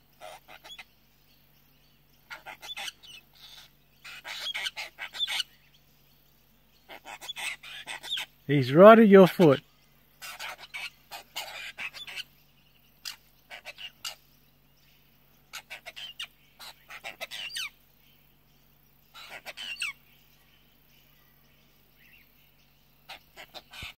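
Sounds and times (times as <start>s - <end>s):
birds giving short calls: 0.0s - 1.0s, 2.2s - 5.8s, 6.7s - 14.5s, 15.3s - 17.8s, 19.1s - 20.4s, 22.9s - 24.0s.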